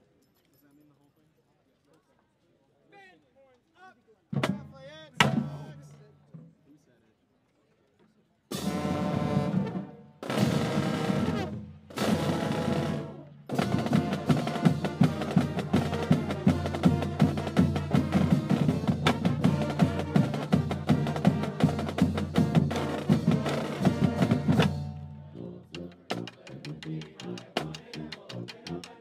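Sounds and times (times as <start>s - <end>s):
marching band playing: 4.4s - 6.0s, 8.5s - 29.0s
steady drum strokes: 8.5s - 29.0s.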